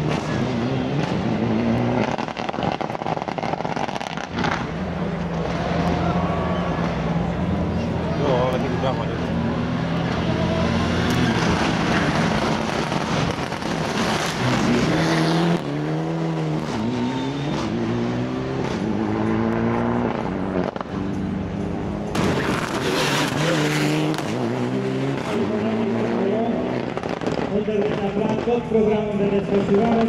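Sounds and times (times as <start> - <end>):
loud rushing noise: 0.0 - 21.2
rally car engine revving: 0.0 - 30.0.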